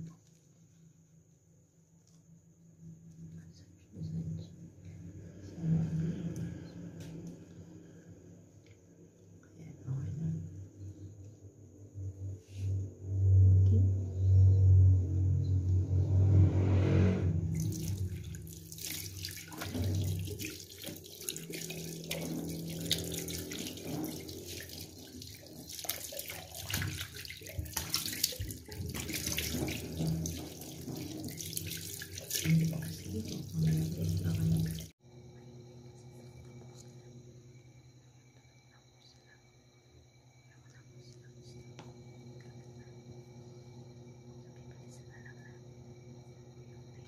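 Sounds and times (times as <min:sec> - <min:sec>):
low hum: 0:02.0 - 0:47.0
tap water running into sink: 0:17.5 - 0:34.9.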